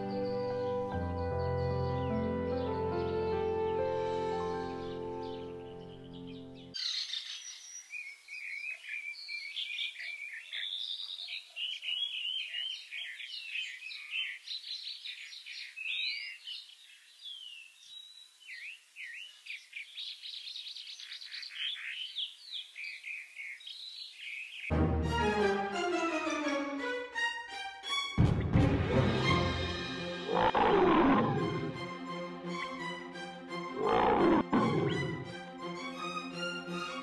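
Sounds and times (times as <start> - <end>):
background music: 0.0 - 6.8, 24.7 - 37.0
birds chirping and calling: 4.8 - 24.7, 30.3 - 31.8, 33.8 - 35.4.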